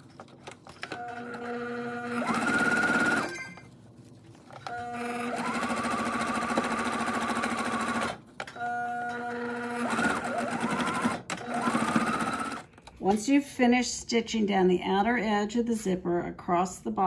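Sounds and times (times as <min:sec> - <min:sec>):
electric sewing machine stitching: 0:00.8 - 0:03.6, 0:04.7 - 0:12.7.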